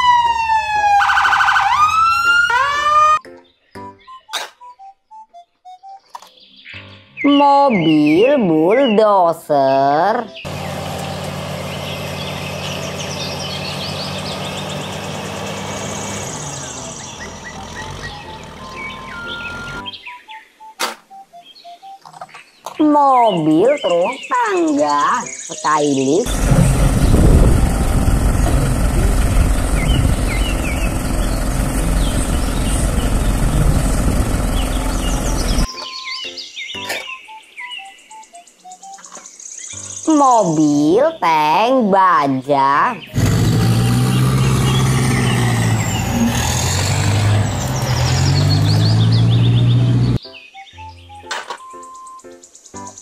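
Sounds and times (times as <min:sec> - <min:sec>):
bulldozer diesel engine running: 0:10.4 - 0:19.8, 0:26.2 - 0:35.7, 0:43.1 - 0:50.2.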